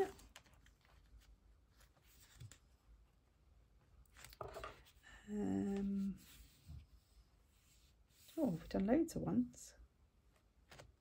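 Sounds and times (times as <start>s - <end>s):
woman humming: 5.1s - 6.2s.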